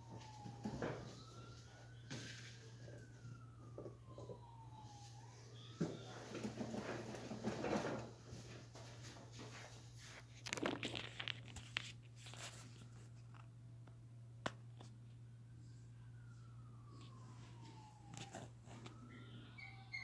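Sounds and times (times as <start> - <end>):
rustling and scraping: 5.9 - 13.5.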